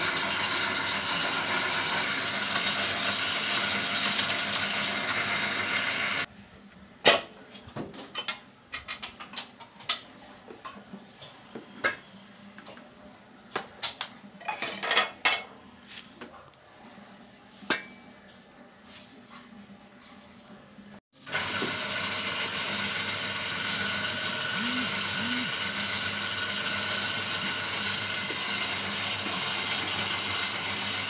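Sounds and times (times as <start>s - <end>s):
loud machine noise: 21.3s - 31.0s.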